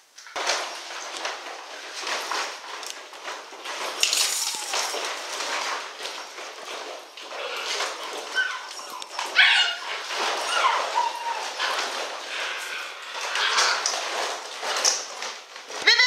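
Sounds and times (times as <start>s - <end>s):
puppies yipping and whimpering: 7.3s - 14.1s.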